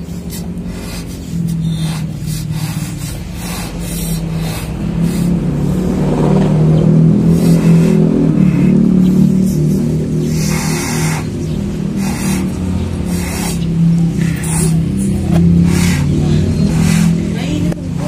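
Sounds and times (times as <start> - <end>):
breathy puffs: 0.0 - 6.2, 7.1 - 17.7
balloon buzzing drone: 0.0 - 17.7.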